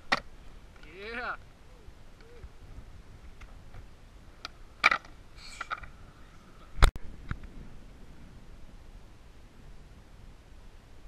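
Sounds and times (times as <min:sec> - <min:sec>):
skateboard clacking on concrete: 0:04.4 - 0:05.9.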